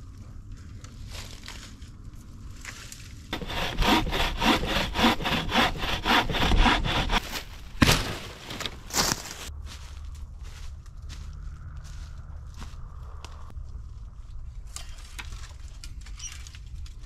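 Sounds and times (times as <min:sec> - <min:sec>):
bow saw cutting log: 0:03.3 - 0:07.5.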